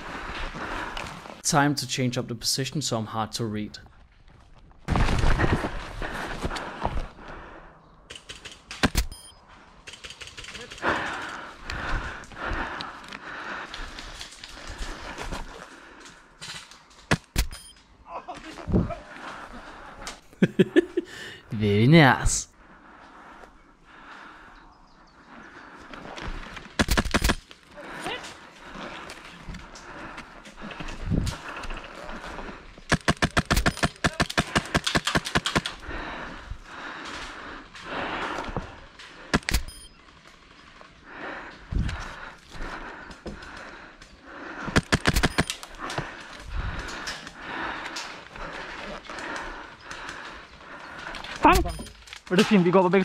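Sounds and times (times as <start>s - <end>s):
airsoft rifle firing rapid shots: 26.8s - 27.4s, 32.9s - 35.8s, 44.7s - 45.5s.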